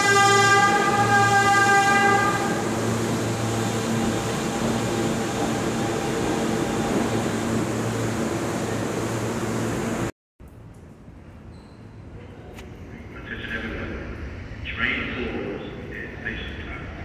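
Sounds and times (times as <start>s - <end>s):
subway train wheels rumbling: 0.0s - 10.1s, 12.0s - 17.0s.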